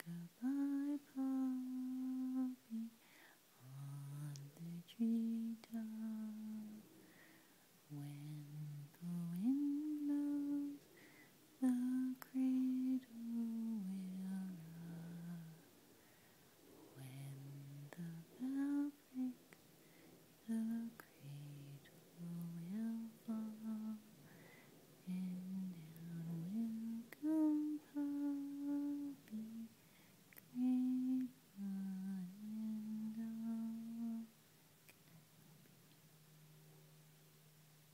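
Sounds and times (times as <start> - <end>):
person humming a lullaby: 0.0 - 3.0, 3.6 - 7.3, 7.9 - 15.8, 16.9 - 19.6, 20.4 - 34.4.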